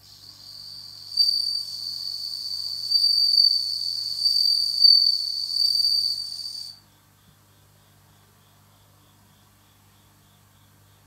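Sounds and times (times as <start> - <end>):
cricket ringing trill: 0.1 - 6.8.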